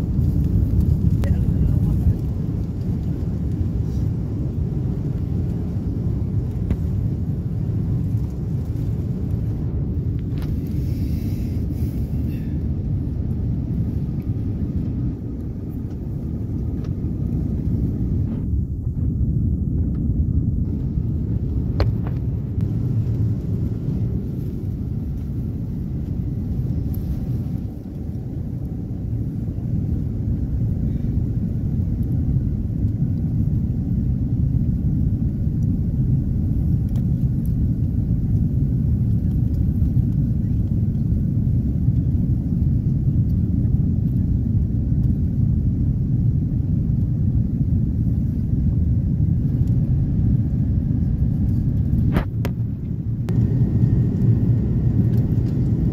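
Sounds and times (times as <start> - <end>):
rushing air: 0.0 - 31.8
jet engines rumbling: 0.0 - 55.9.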